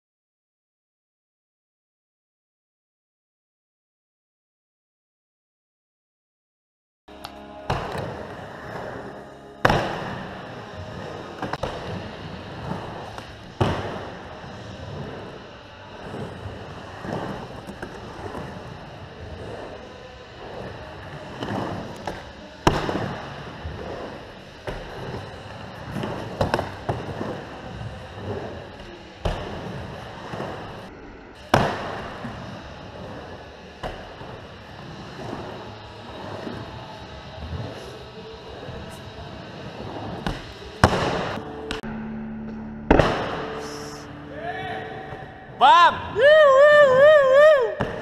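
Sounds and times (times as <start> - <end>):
skateboard wheels rumbling: 7.5 - 41.8
skateboard clacks: 9.6 - 36.7.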